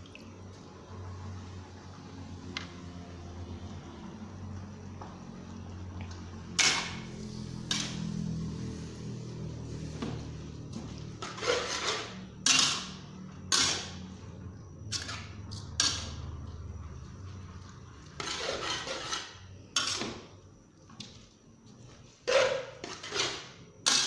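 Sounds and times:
spatula scraping metal wok: 6.6 - 8.2, 11.2 - 14.0, 18.2 - 20.2, 22.2 - 24.0.

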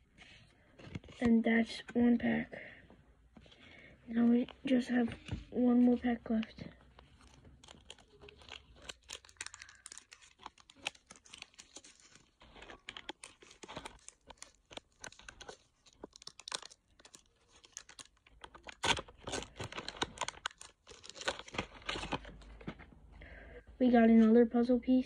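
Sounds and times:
card pack wrapper tearing and crinkling: 6.3 - 22.8.

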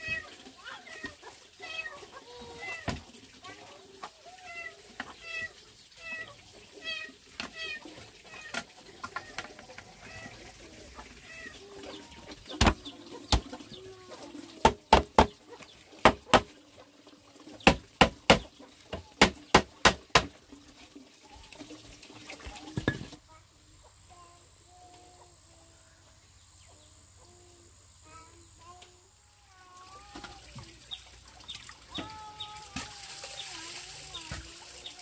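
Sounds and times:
chicken calls: 0.0 - 14.6
sharp knocks on bamboo: 16.0 - 16.5, 17.7 - 20.3.

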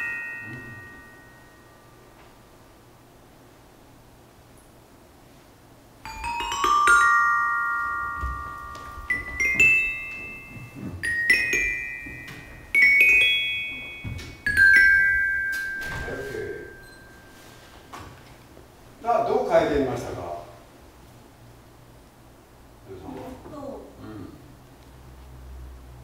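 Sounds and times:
metallophone notes ringing: 0.0 - 2.2, 6.0 - 17.8.

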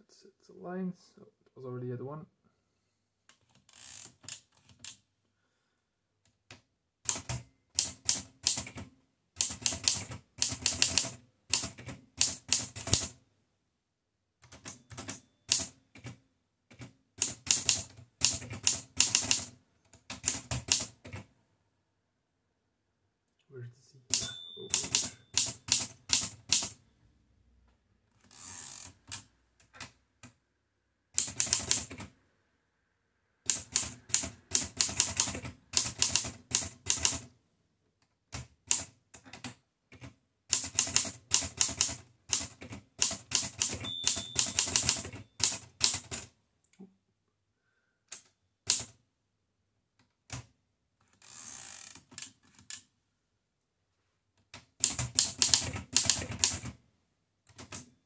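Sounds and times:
typewriter keys clacking: 24.2 - 26.7, 33.5 - 37.3, 38.7 - 46.3, 54.8 - 56.7.

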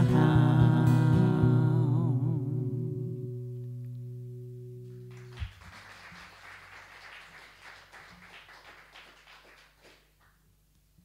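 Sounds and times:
acoustic guitar chord: 0.0 - 5.3
audience applauding: 5.1 - 10.4.

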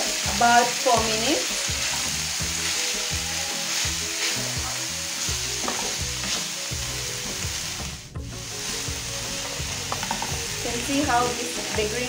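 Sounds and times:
vegetables sizzling in oil: 0.0 - 12.0
spatula scraping pan: 1.7 - 7.0.

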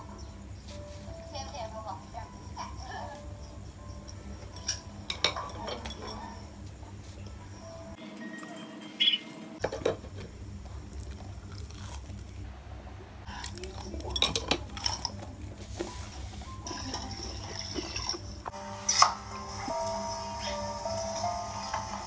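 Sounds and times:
steady low hum: 9.4 - 22.0
eating sounds: 10.7 - 12.4, 13.3 - 15.9.

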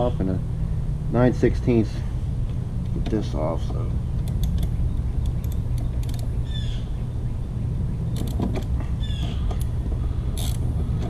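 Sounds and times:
steady low rumble: 0.0 - 11.0
wrench clicking on metal: 4.2 - 6.3, 10.4 - 10.6.

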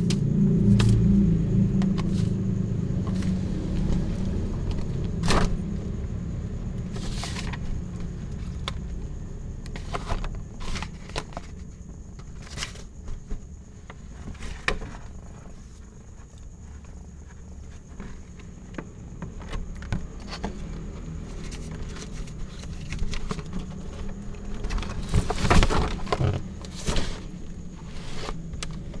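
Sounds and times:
low rumble: 0.0 - 9.6
kitten rustling on paper: 6.9 - 8.6.

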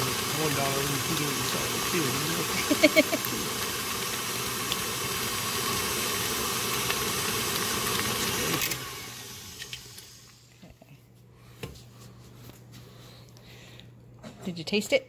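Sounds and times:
electric stand mixer running: 0.0 - 10.5.

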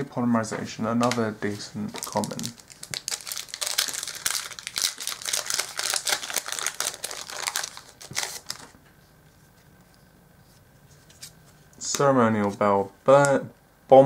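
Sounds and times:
foil wrapper crinkling: 1.9 - 8.8.

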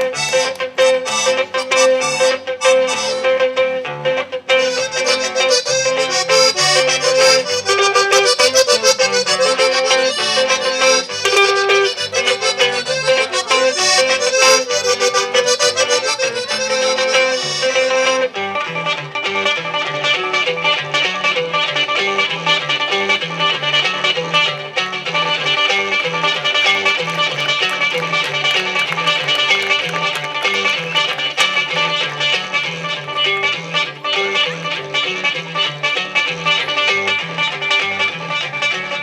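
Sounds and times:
accordion melody: 0.0 - 39.0.

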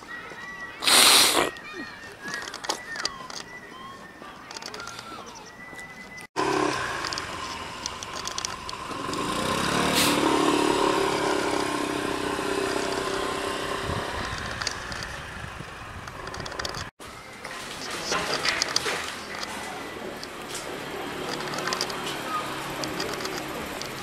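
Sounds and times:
vehicle engine passing by: 6.4 - 16.0.

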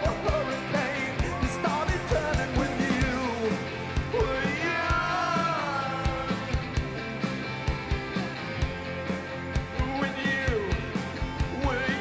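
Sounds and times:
person singing: 0.0 - 6.6, 9.8 - 12.0
drums steady beat: 0.0 - 12.0
live rock band playing: 0.0 - 12.0.

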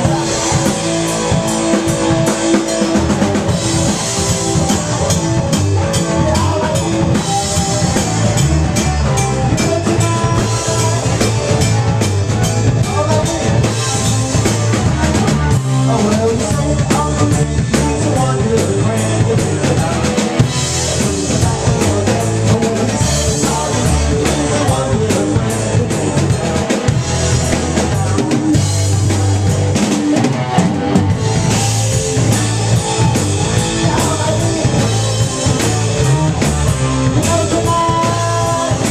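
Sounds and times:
drum kit: 0.0 - 38.9
electric guitars: 0.0 - 38.9.

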